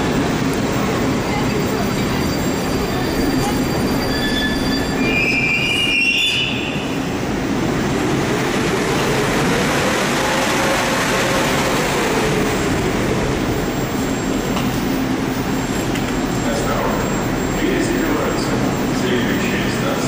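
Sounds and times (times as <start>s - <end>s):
metro train rumbling: 0.0s - 20.0s
short high tones: 2.2s - 6.8s.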